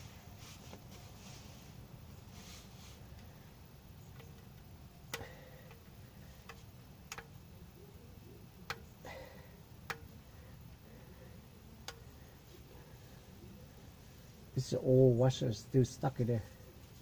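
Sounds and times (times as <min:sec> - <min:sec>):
faint sharp clicks and taps on metal: 0:04.1 - 0:07.5, 0:08.6 - 0:10.2, 0:11.8 - 0:12.3.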